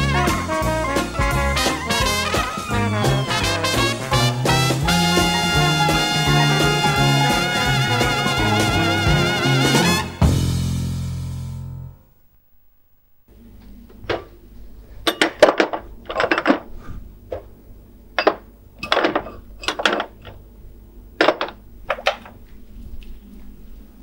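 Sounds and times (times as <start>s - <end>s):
low steady hum: 10.7s - 24.0s
glasses and bottles clinking: 18.2s - 20.3s.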